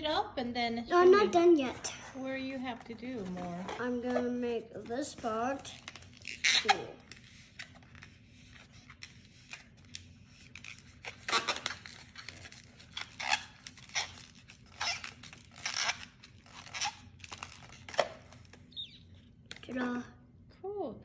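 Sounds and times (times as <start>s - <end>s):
balloon squeaking and rubbing: 5.4s - 19.2s.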